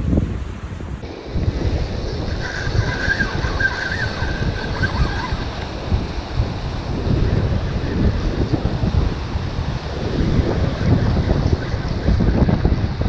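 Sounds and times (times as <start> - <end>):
surf washing against rocks: 0.0 - 13.0
wind buffeting microphone: 0.0 - 13.0
faint wavering whistle: 2.4 - 5.4.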